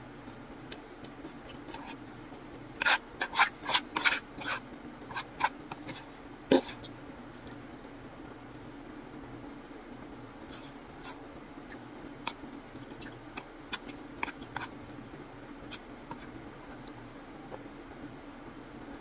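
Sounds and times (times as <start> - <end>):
chopsticks scraping and tapping box: 2.8 - 6.8, 13.4 - 14.7.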